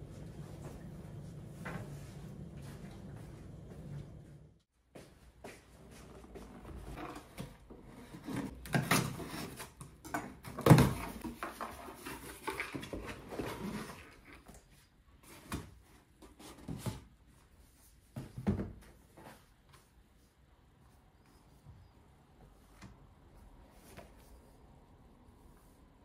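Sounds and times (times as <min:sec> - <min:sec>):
cardboard boxes rustling and scraping: 0:05.9 - 0:19.9.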